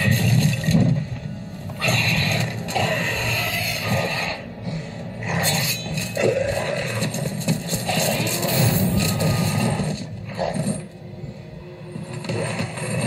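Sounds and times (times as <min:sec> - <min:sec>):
creature snarling and shrieking: 0:01.8 - 0:04.5.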